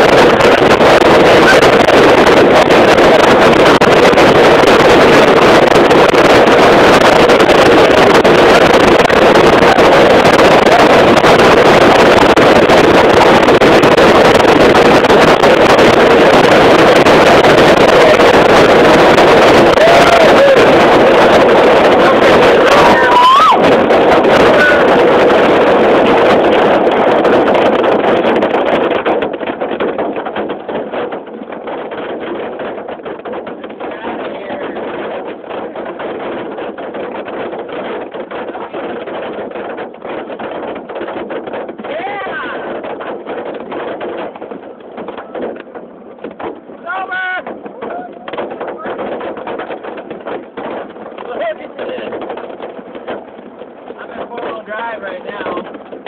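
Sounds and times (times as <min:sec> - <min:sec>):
hail clattering on vehicle roof: 0:23.8 - 0:56.0.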